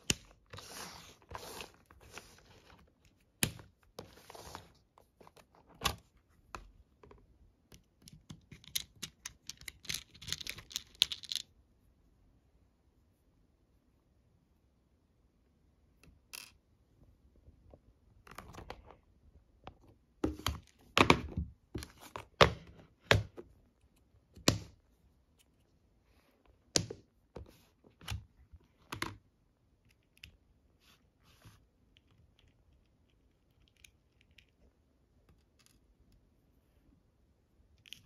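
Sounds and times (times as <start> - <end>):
plastic boxes and beads clicking: 8.0 - 11.5.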